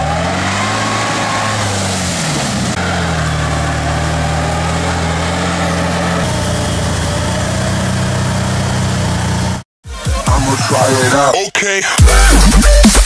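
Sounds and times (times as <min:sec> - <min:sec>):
engine revving: 0:00.0 - 0:09.6.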